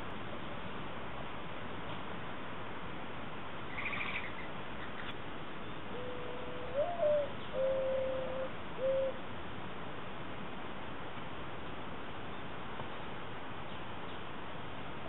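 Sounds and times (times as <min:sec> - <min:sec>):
small bird chirping: 0:03.7 - 0:05.8
mourning dove cooing: 0:05.9 - 0:09.2.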